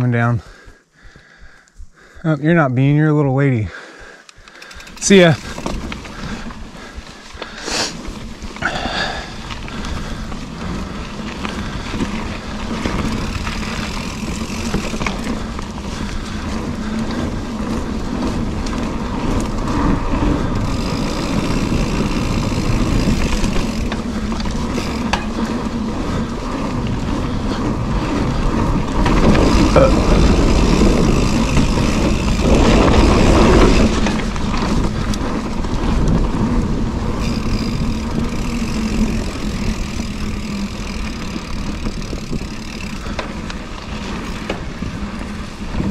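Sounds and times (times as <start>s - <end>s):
bike tyres on dirt: 0.0s - 45.9s
wind rushing over microphone: 4.8s - 45.9s.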